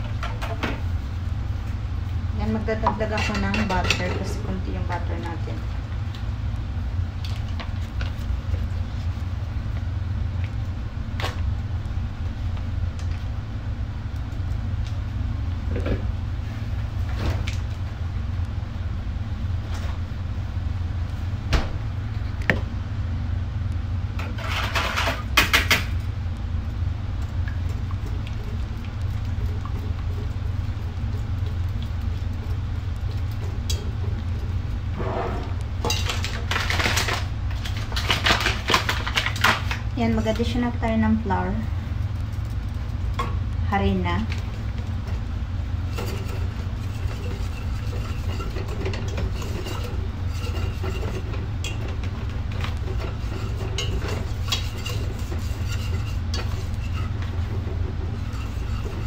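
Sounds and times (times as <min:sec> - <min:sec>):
steady low hum: 0:00.0 - 0:59.0
whisk clattering in a metal pot: 0:45.9 - 0:59.0.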